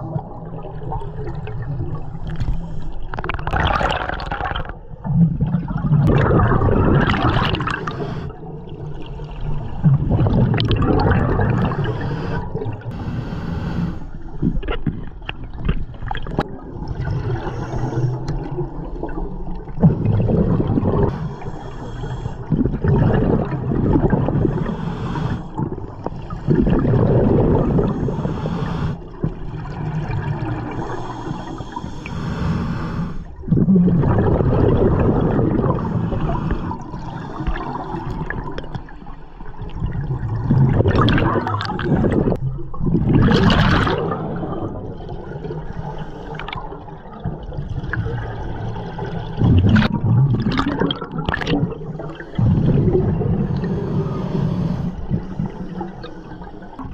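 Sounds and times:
exhaled bubbles gurgling: 0.0s - 56.9s
diver breathing through regulator: 7.5s - 8.5s, 11.5s - 14.4s, 17.0s - 18.4s, 21.0s - 22.8s, 24.2s - 29.2s, 30.5s - 33.4s, 35.6s - 38.2s, 45.5s - 46.9s, 51.8s - 56.9s.

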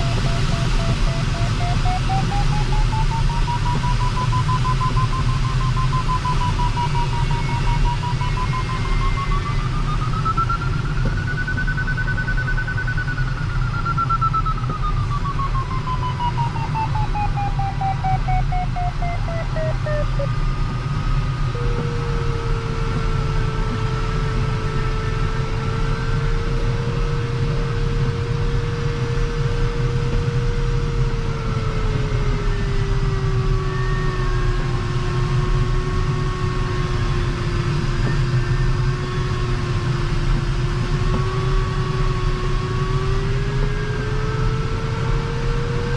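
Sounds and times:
variometer beeps and tone: 0.0s - 45.9s.

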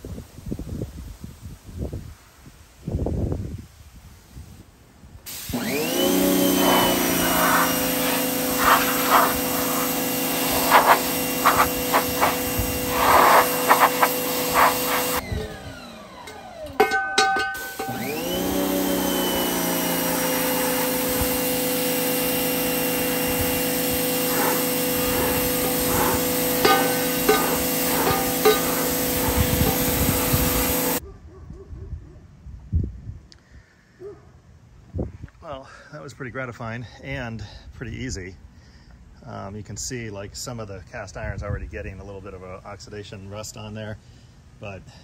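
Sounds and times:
water jet blasting metal pan: 5.3s - 15.2s, 16.2s - 31.0s
pressure washer motor humming: 5.3s - 31.0s.

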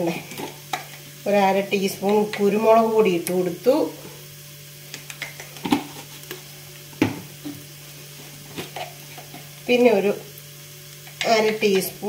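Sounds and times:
faint frying sizzle: 0.0s - 12.0s
spoon stirring in a pot: 8.4s - 9.6s.

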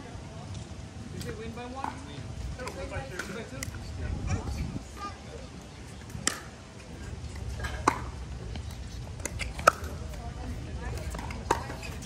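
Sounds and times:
pickleball hollow pops: 7.8s - 8.2s.

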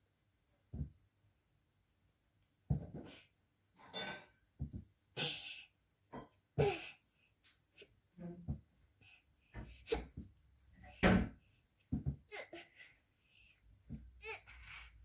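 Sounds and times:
child breathy exhalations: 12.3s - 15.0s.

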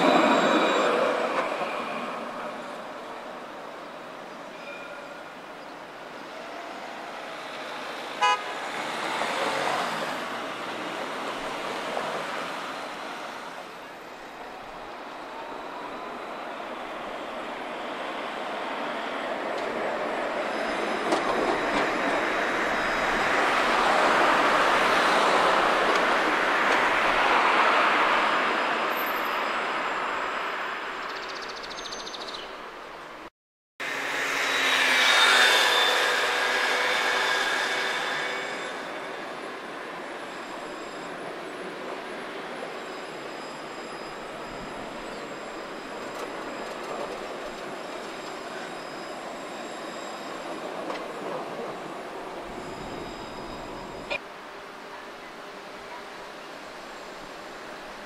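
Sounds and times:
tram rolling and motor noise: 0.0s - 31.6s, 33.8s - 58.0s
tram running with high whine: 0.0s - 58.0s
tram horn toot: 8.1s - 9.0s.

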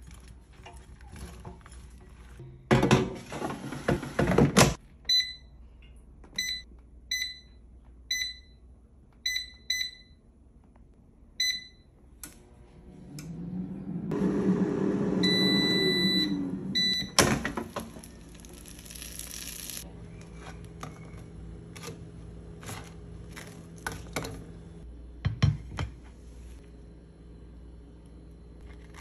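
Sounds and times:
fan humming: 12.2s - 25.3s
long beep: 15.2s - 17.2s.

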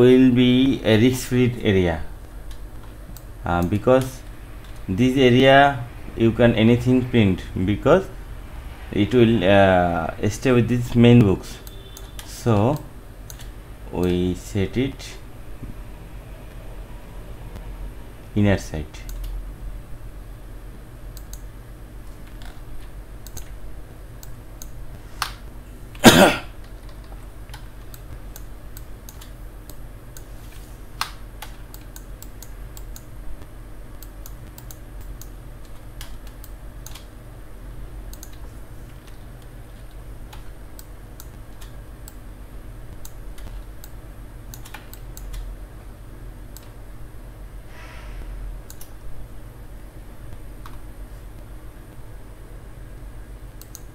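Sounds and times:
steady low hum: 0.0s - 53.9s
keyboard and mouse clicks: 11.6s - 14.2s, 21.1s - 23.6s, 26.6s - 30.3s, 31.0s - 33.1s, 33.9s - 37.1s, 38.1s - 42.2s, 42.9s - 45.5s, 48.6s - 49.1s, 53.6s - 53.9s.

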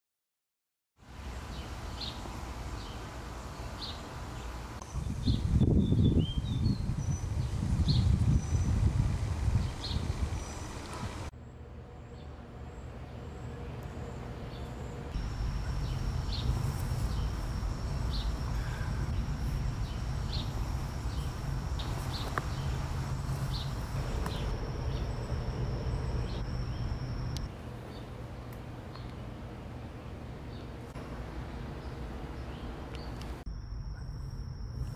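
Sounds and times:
steady high whine: 11.4s - 34.9s
bird chirping: 12.1s - 28.1s
low rumble: 15.1s - 27.5s.

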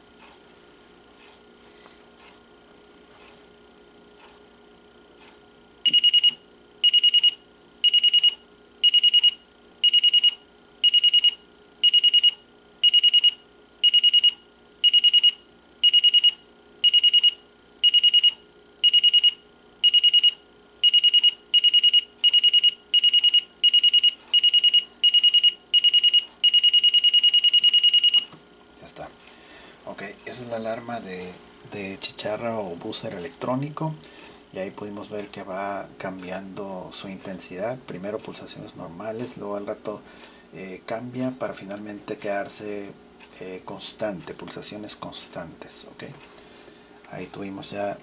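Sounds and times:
alarm clock beeping: 5.8s - 28.3s.

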